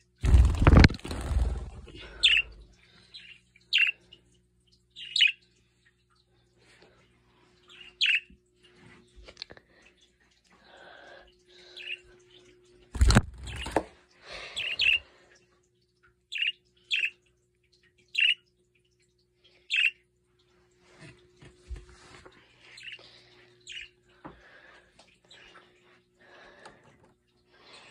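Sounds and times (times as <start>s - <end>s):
parakeets chirping: 0.0s - 4.0s, 5.0s - 5.4s, 7.7s - 8.3s, 13.0s - 13.8s, 14.6s - 15.0s, 16.3s - 17.2s, 18.1s - 18.4s, 19.7s - 20.0s.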